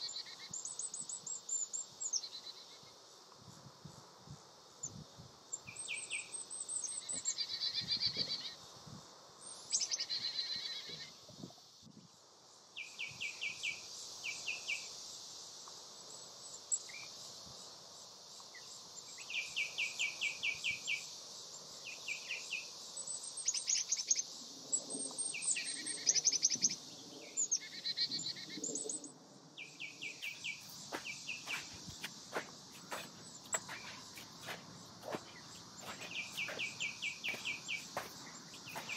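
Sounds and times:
high insect drone: 0.0s - 38.9s
birds chirping: 25.2s - 38.9s
footsteps on sand: 30.0s - 38.9s.

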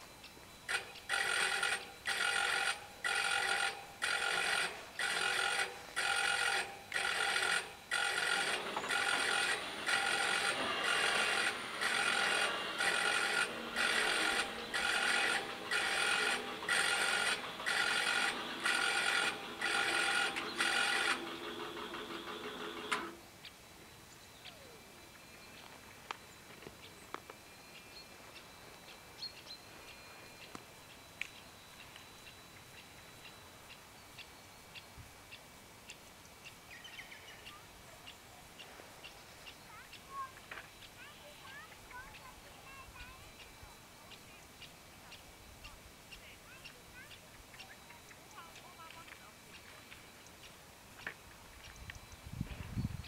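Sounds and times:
barrier motors humming: 0.0s - 33.9s
level crossing warning bells: 0.0s - 34.8s, 37.0s - 53.0s.

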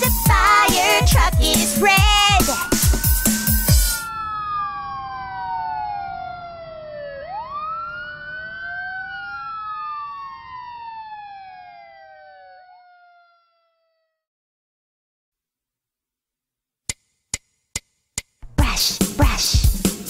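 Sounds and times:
fire truck siren wailing: 0.0s - 14.3s.

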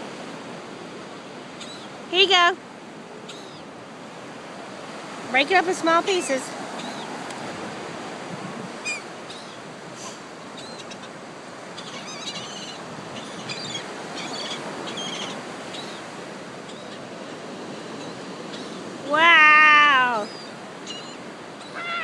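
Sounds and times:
ocean surf: 0.0s - 22.0s
wind: 0.0s - 22.0s
gulls calling: 3.2s - 3.7s, 5.4s - 7.2s, 8.8s - 17.1s, 17.8s - 22.0s.

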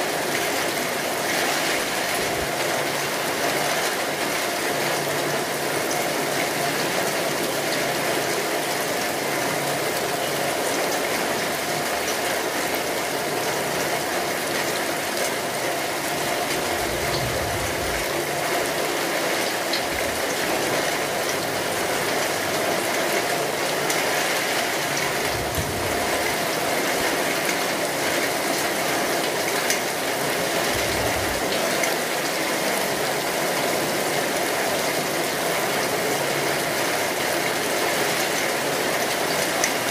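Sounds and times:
steady rain hiss: 0.0s - 39.9s
low rumbles: 16.4s - 18.6s, 30.6s - 31.5s.

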